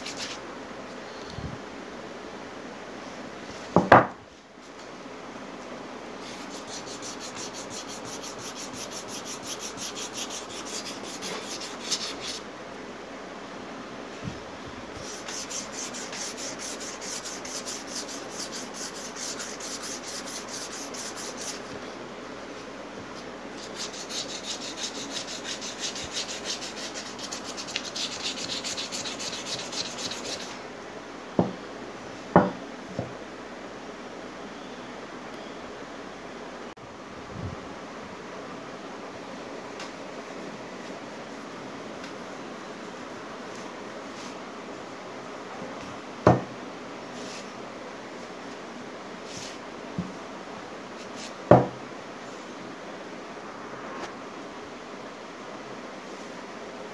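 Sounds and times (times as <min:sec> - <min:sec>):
sandpaper rubbing by hand: 0:00.0 - 0:00.4, 0:06.2 - 0:12.4, 0:15.0 - 0:21.7, 0:23.6 - 0:30.6.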